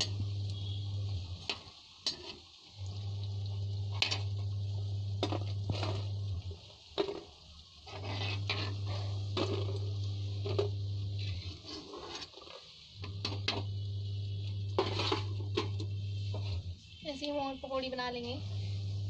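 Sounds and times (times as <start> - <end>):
hot oil sizzling: 0.0 - 19.0
metal spoon scraping pan: 1.4 - 2.5, 7.9 - 9.8, 10.4 - 13.7, 14.7 - 16.7.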